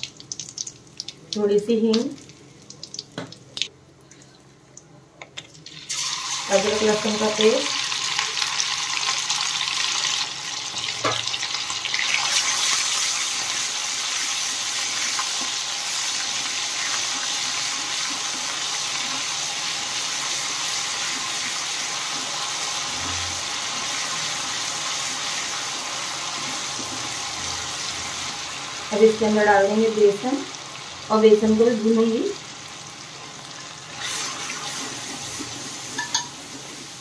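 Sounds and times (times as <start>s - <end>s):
paste sizzling in hot oil: 5.7s - 28.9s, 32.4s - 37.0s.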